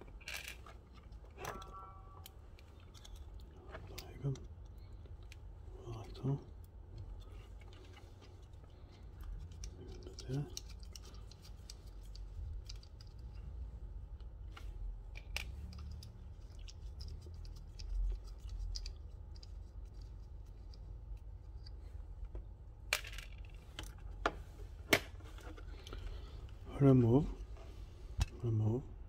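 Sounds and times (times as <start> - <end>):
small tools clicking and scratching: 0.0 - 13.5, 15.2 - 21.8
low steady hum: 0.0 - 29.0.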